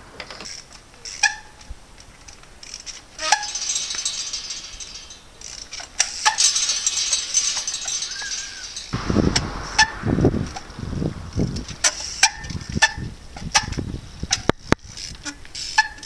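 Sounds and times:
steady high hiss: 0.0s - 14.3s
metallic clicks and rattles from bike: 0.2s - 10.7s, 11.4s - 16.0s.

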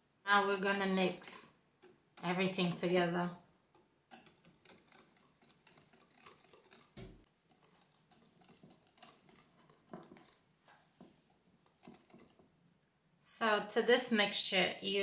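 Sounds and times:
utensil scraping a bowl: 4.1s - 10.4s.

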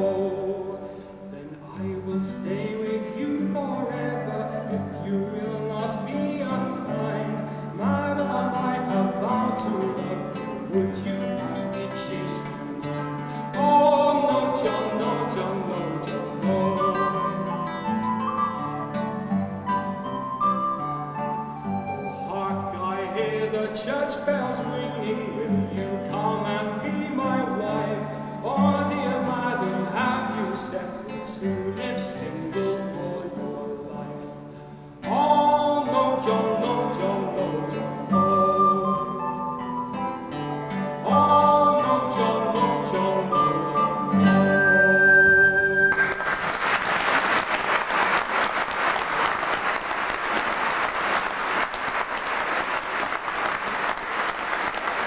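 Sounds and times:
man singing: 0.0s - 18.2s, 21.7s - 45.9s
woodwind accompaniment: 0.0s - 33.0s, 35.0s - 50.5s
classical guitar: 0.0s - 46.5s
audience applause: 45.9s - 55.0s.

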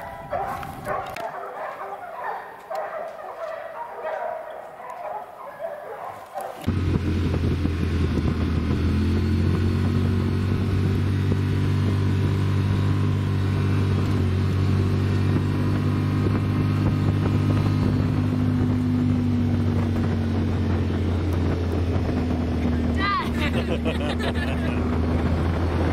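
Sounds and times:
road noise: 0.0s - 25.9s
utility vehicle engine running: 6.6s - 25.9s.

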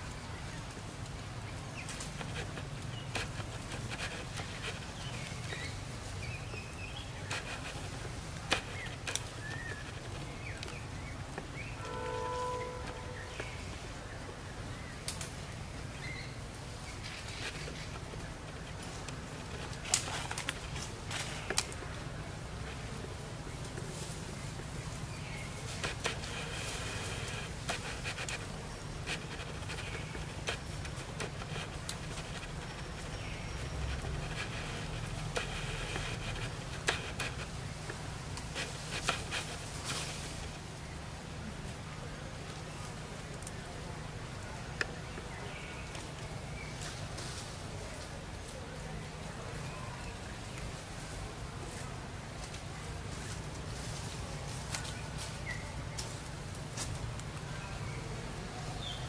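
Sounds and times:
faint high buzz: 11.7s - 13.8s
horn-like tone: 11.8s - 13.4s.

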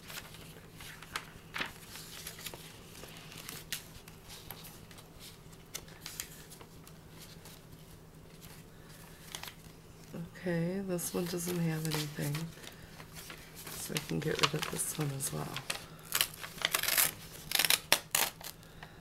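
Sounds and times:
paper pages rustling and flicking: 0.0s - 9.8s, 11.1s - 18.6s
steady low hum: 0.0s - 19.0s.

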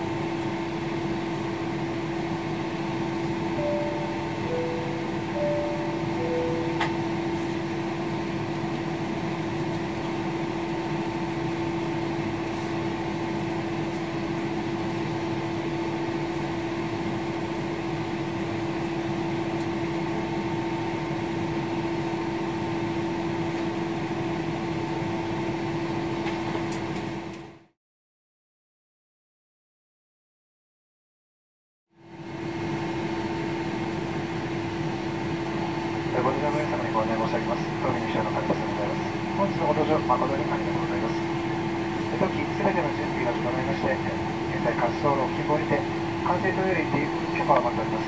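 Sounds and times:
airliner cabin hum: 0.0s - 20.2s, 35.2s - 48.0s.

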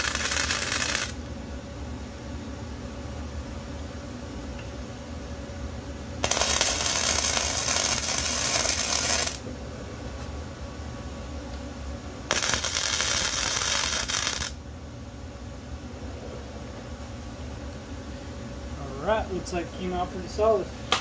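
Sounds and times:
welder arc crackling: 0.0s - 1.2s, 6.2s - 9.4s, 12.3s - 14.6s.

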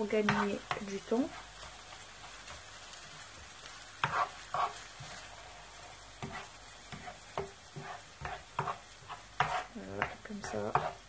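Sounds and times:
sauce sizzling in a frying pan: 0.0s - 11.0s
plastic spatula scraping a pan: 4.0s - 11.0s.

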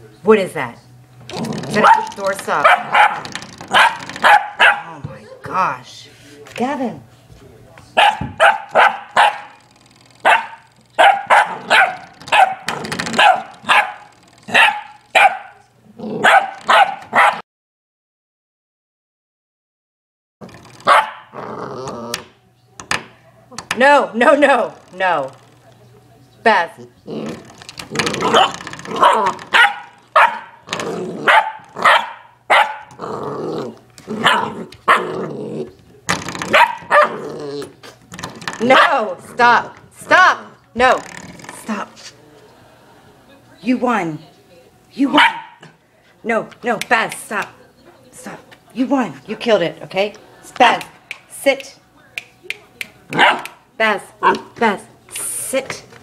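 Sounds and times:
spring doorstop twanging: 1.2s - 5.1s, 8.0s - 15.6s, 16.3s - 17.3s, 20.4s - 21.2s, 21.9s - 25.9s, 27.2s - 33.0s, 35.9s - 37.2s, 38.1s - 40.2s, 40.8s - 41.8s
puppy growling: 1.3s - 5.1s, 15.8s - 17.4s, 20.9s - 22.3s, 26.8s - 35.9s, 36.5s - 38.0s
puppy barking: 1.8s - 5.0s, 8.0s - 9.6s, 10.2s - 15.6s, 16.2s - 17.4s, 20.8s - 21.4s, 28.2s - 33.0s, 34.2s - 35.1s, 36.5s - 37.2s, 38.7s - 39.0s, 45.1s - 45.7s, 53.1s - 53.6s, 54.2s - 54.6s.

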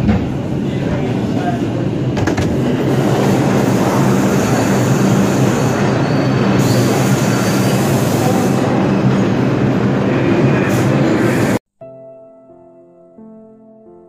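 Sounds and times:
subway train rumbling on rails: 0.0s - 11.6s.

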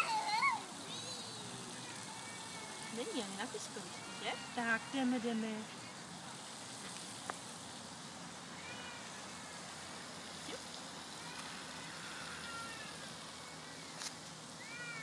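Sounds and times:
young child squealing: 0.0s - 1.4s, 14.6s - 15.0s
steady outdoor hiss: 0.0s - 15.0s.

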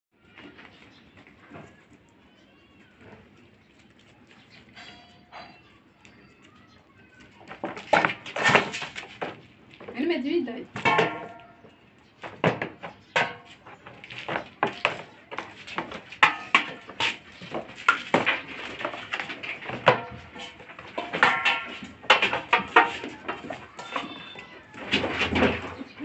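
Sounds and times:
metal bowl and tub clanking: 4.4s - 5.7s, 7.5s - 26.0s.

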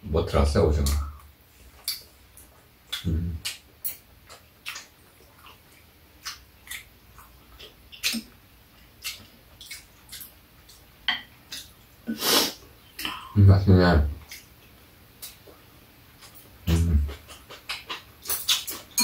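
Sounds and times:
wet chewing and lip smacks: 1.8s - 12.0s, 14.2s - 15.6s, 16.2s - 19.0s.

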